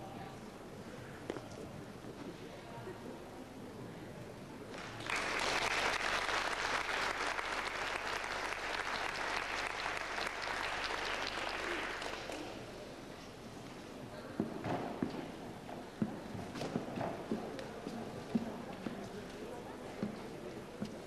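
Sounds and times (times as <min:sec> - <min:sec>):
audience applauding: 0:04.8 - 0:12.6.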